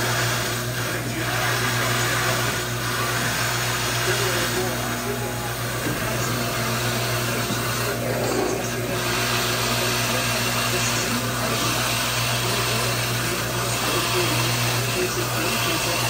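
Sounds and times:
drill bit cutting: 0:00.0 - 0:16.0
drill press motor humming: 0:00.0 - 0:16.0.

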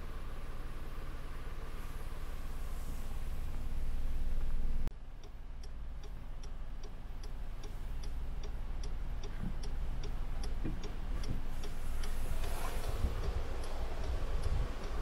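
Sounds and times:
low engine hum: 0:00.0 - 0:15.0
indicator relay ticking: 0:04.8 - 0:15.0.

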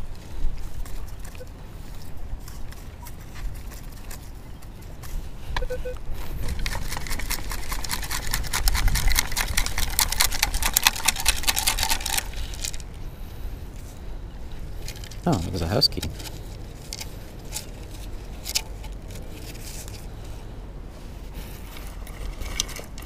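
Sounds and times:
metal detector beep: 0:01.2 - 0:01.6, 0:05.6 - 0:06.0
sand and stones rattling in metal scoop: 0:06.4 - 0:12.9.

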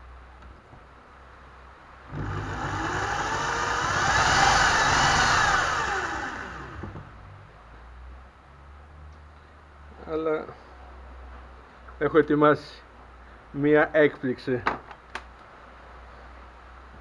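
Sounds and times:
electric drill whine: 0:02.1 - 0:07.1.

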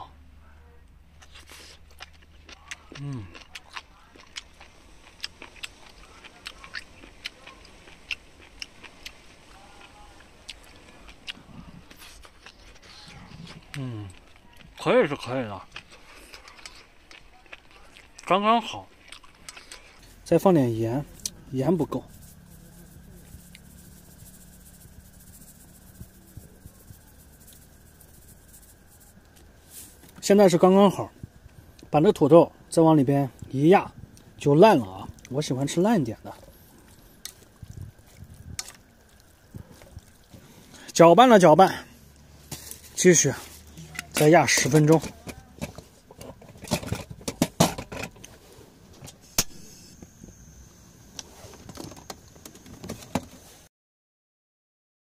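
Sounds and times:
faint steady hiss: 0:03.1 - 0:53.7
faint high hiss: 0:20.0 - 0:45.1.

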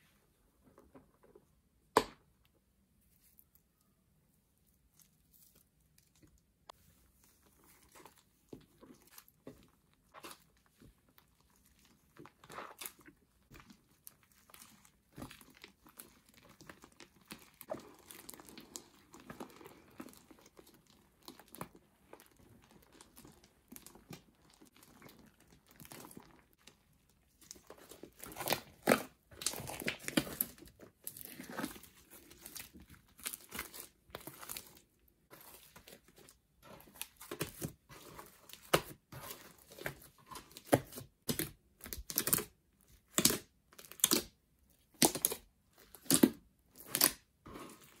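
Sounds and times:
slime crackling and popping: 0:10.0 - 0:47.9.

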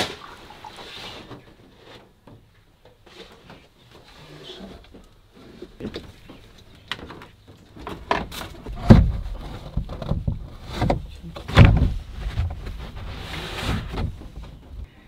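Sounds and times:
plastic panel knocking and rattling: 0:07.0 - 0:12.8
heavy thumps: 0:08.0 - 0:14.9.

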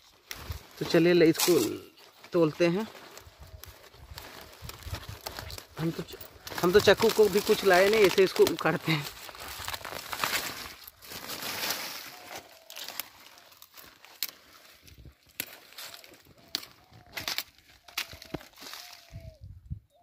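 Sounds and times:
leaves rustling and crumpling: 0:00.0 - 0:19.5
stalks cracking: 0:02.9 - 0:19.0.

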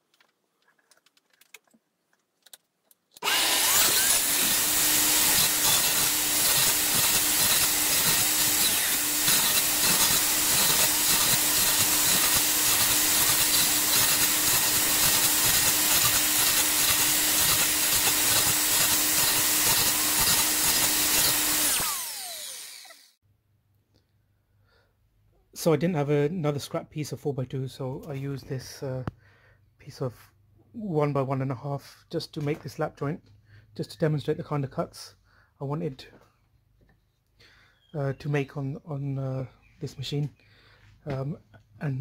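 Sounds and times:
mitre saw whining: 0:03.2 - 0:23.2
saw blade cutting timber: 0:03.2 - 0:23.2.

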